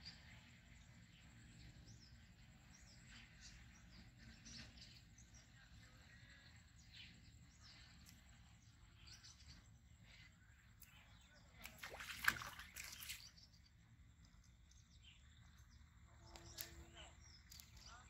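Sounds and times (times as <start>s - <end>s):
water splash and slosh: 11.6s - 13.4s.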